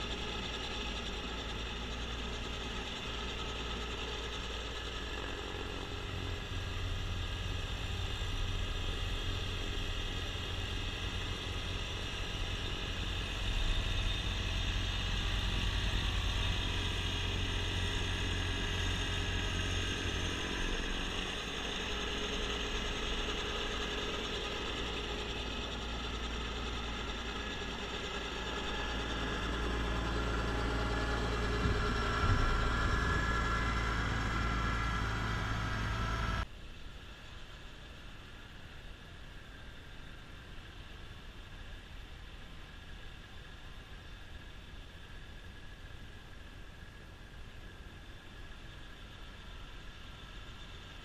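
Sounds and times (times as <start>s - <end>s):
snowblower: 0.0s - 36.5s
tractor diesel engine running: 0.0s - 36.5s.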